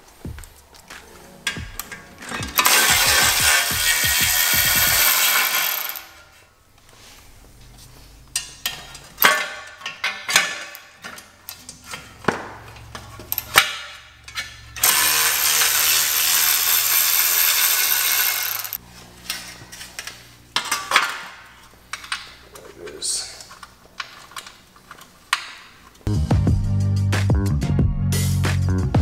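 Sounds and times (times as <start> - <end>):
cordless ratchet running: 2.6 - 6.1, 14.8 - 18.8.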